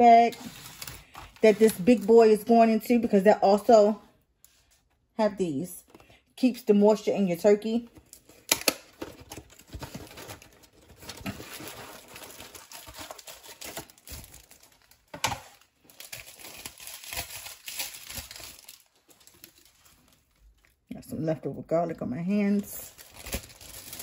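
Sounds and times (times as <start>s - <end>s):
plastic bag crinkling: 8.0s - 20.8s, 22.5s - 24.0s.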